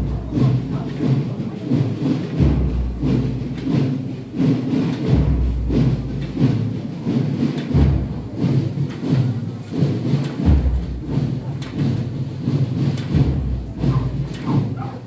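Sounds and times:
deep muffled drum beat: 0:00.0 - 0:15.0.

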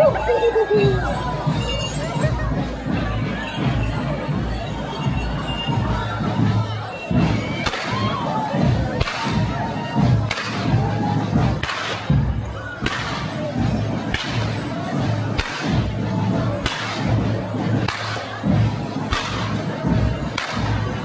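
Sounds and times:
whip cracks: 0:07.6 - 0:08.0, 0:09.0 - 0:09.4, 0:10.3 - 0:10.7, 0:11.6 - 0:12.1, 0:12.8 - 0:13.3, 0:14.1 - 0:14.5, 0:15.4 - 0:15.8, 0:16.6 - 0:17.0, 0:17.9 - 0:18.3, 0:19.1 - 0:19.6, 0:20.4 - 0:20.8.

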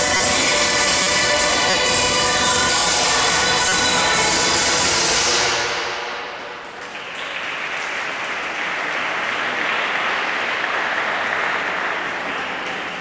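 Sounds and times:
audience applause: 0:06.4 - 0:13.0.

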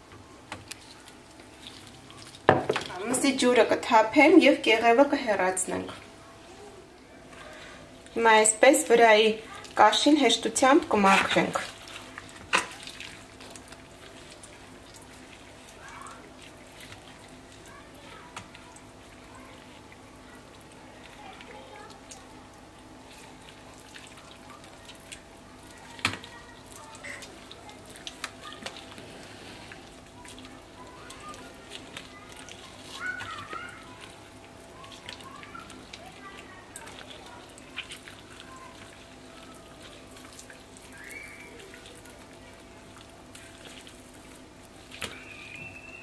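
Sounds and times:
wet clicks and squelches: 0:11.2 - 0:29.0, 0:29.7 - 0:46.0.

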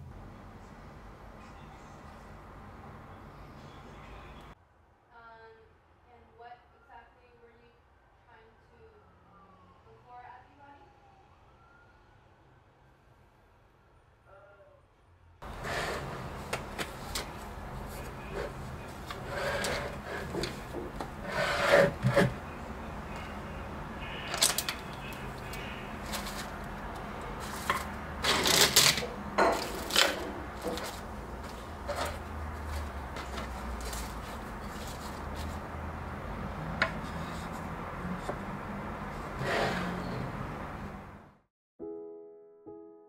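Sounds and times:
box sliding on wooden desk: 0:15.4 - 0:16.6, 0:19.1 - 0:22.4, 0:39.2 - 0:40.4
piano: 0:41.8 - 0:43.0.

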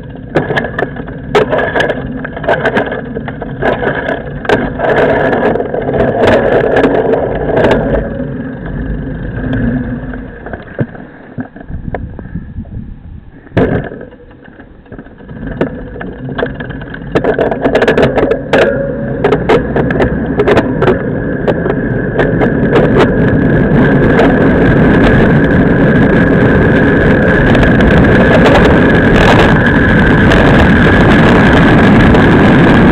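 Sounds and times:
tyre rumble on asphalt: 0:00.0 - 0:12.4, 0:13.4 - 0:32.9
wind buffeting microphone: 0:11.6 - 0:32.9.

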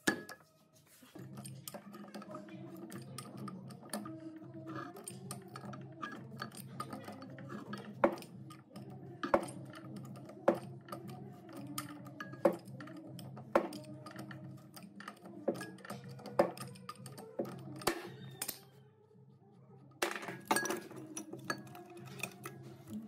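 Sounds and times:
soft background music: 0:00.0 - 0:23.0
metal tools clinking: 0:20.0 - 0:23.0.

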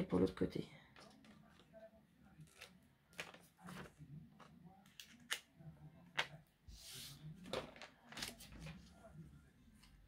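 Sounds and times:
paper rustling: 0:02.4 - 0:05.2, 0:06.8 - 0:09.1
paper crackling and tapping: 0:02.4 - 0:05.5, 0:07.4 - 0:08.9.

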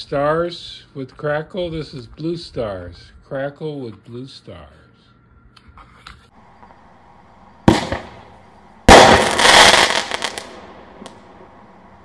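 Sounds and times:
firework launch thump: 0:07.6 - 0:08.2
firework shell crackling: 0:07.6 - 0:11.5.

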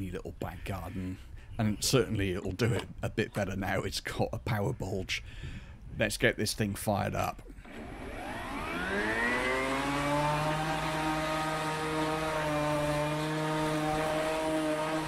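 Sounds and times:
electric lawn mower whine: 0:07.6 - 0:15.0.

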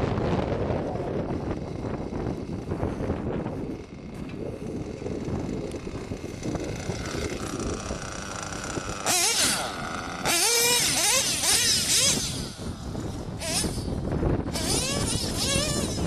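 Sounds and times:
rc nitro engine revving: 0:03.8 - 0:16.0.

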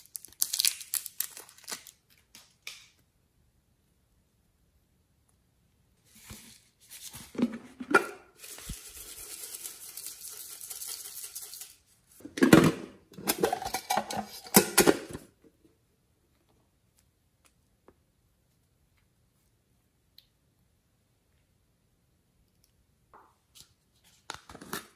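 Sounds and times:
glitter pouring patter: 0:08.4 - 0:11.9
plastic containers clicking and knocking: 0:12.3 - 0:15.3.

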